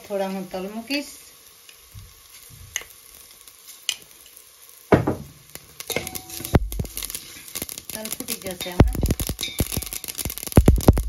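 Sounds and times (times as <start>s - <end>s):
hot oil sizzling in a pot: 0.0s - 11.0s
loud knock against metal pot: 4.9s - 5.3s.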